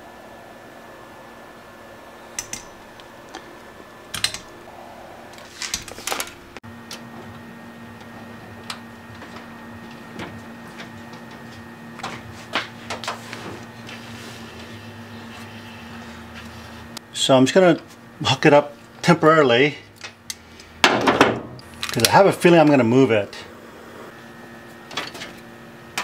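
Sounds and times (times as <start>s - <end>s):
faint steady hum: 0.0s - 26.0s
hands handling wiring: 5.3s - 7.4s, 21.6s - 22.2s.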